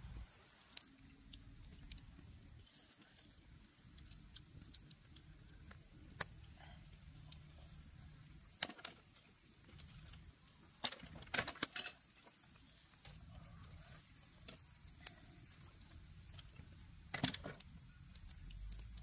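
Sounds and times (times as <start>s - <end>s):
wood fire crackling: 0.0s - 19.0s
sharp pops of fire: 7.8s - 13.2s, 14.1s - 19.0s.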